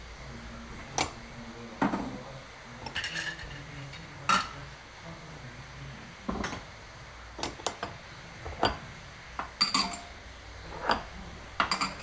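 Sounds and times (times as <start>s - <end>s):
crockery and cutlery clinking: 2.8s - 4.6s, 7.4s - 12.0s.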